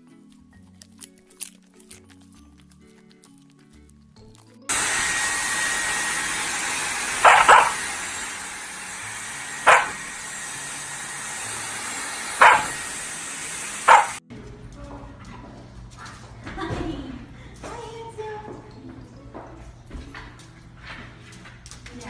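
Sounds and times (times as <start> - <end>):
puppy barking: 7.0 - 8.4, 9.2 - 10.4, 12.2 - 14.2.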